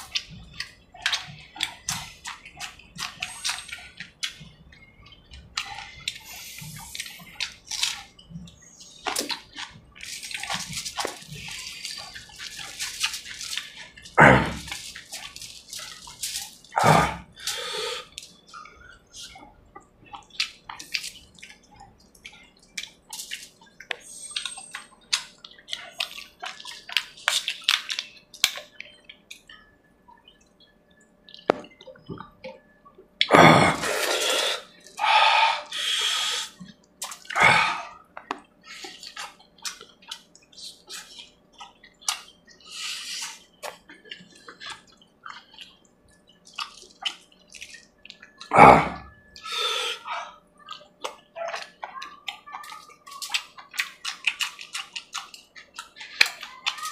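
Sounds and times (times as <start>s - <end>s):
lip smacks and chewing: 0.0s - 35.0s, 35.6s - 56.9s
wet sucking sounds: 5.6s - 8.0s, 33.6s - 36.6s, 42.6s - 43.8s, 48.5s - 50.4s.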